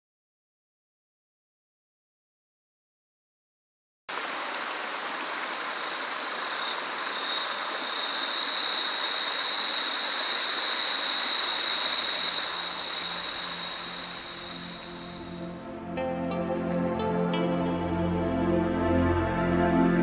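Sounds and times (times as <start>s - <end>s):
stream water over rocks: 4.1s - 15.3s
faint music: 12.6s - 20.0s.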